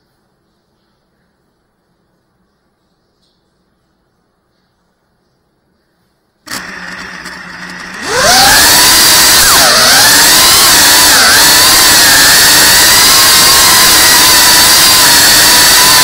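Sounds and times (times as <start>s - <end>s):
quadcopter motors whining: 6.5s - 16.0s.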